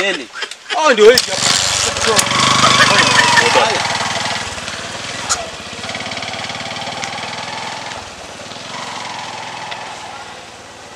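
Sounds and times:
small engine running: 1.2 - 10.9.

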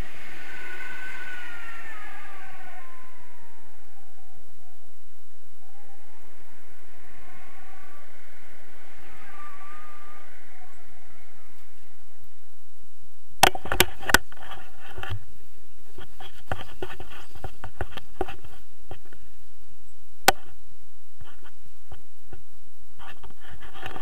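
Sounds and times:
faint rustling and clicking: 13.4 - 19.6, 21.2 - 24.0.

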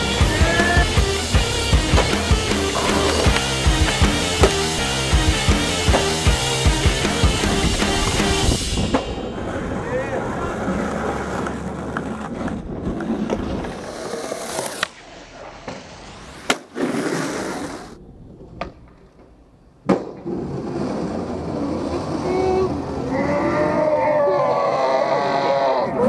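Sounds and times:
skateboard wheels rolling: 1.7 - 6.4, 7.3 - 24.0
skateboard clacks and impacts: 1.9 - 4.7, 5.9 - 6.2, 18.5 - 21.2
voices: 21.9 - 26.0.

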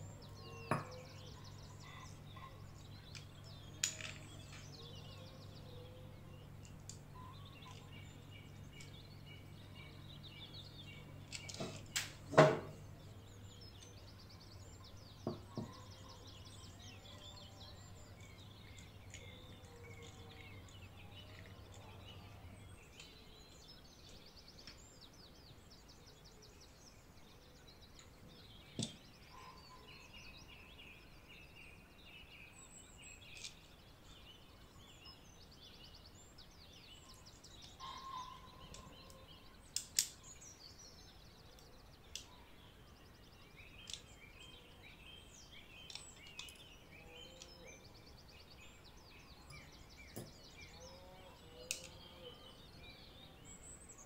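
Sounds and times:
faint birds chirping: 0.0 - 54.0
plastic parts clicking: 33.4 - 33.6, 39.8 - 40.2, 45.8 - 46.6, 51.6 - 52.0.

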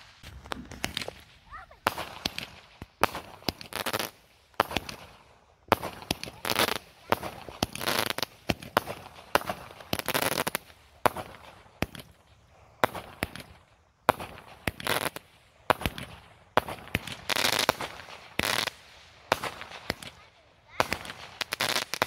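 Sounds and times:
firework crackling: 0.0 - 22.0
fireworks bangs: 0.0 - 22.0.

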